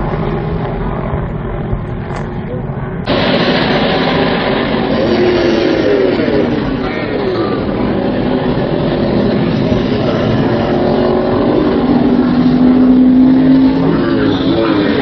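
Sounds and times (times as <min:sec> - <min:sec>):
race car engines running: 0:00.0 - 0:15.0.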